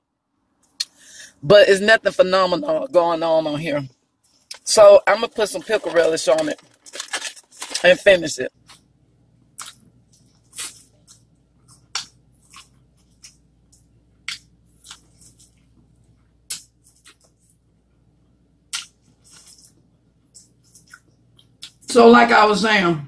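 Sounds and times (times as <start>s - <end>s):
mouth smacks and clicks: 9.6s - 15.1s, 16.5s - 17.4s, 18.7s - 21.9s.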